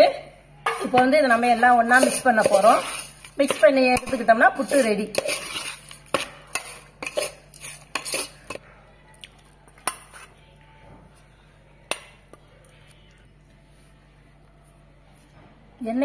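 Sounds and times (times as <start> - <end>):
metal spoon scraping steel bowl: 0.6 - 8.6.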